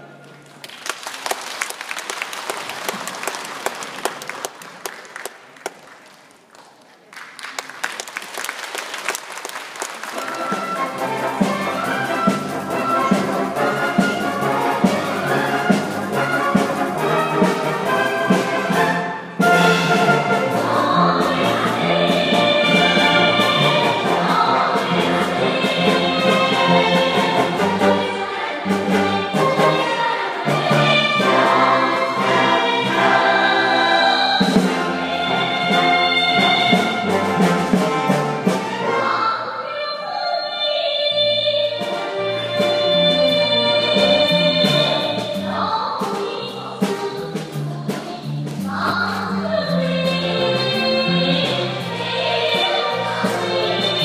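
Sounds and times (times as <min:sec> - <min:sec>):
orchestral music with brass: 0:10.0 - 0:54.0
girls singing: 0:17.0 - 0:37.4, 0:38.5 - 0:54.0.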